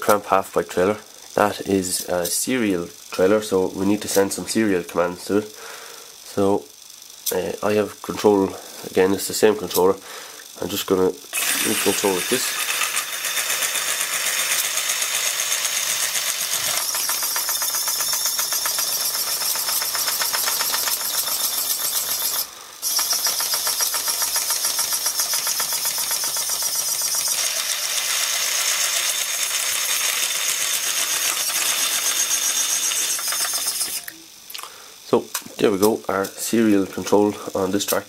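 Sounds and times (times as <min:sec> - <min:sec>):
small electric motor whirring: 0:05.4 - 0:34.3.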